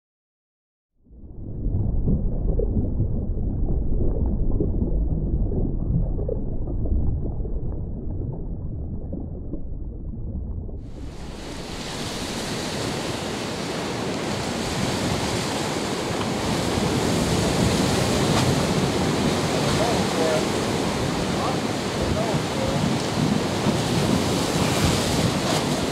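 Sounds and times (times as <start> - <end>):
deep muffled rumble: 1.0 - 12.4
choppy sea and surf: 10.7 - 25.9
wind buffeting microphone: 10.8 - 25.9.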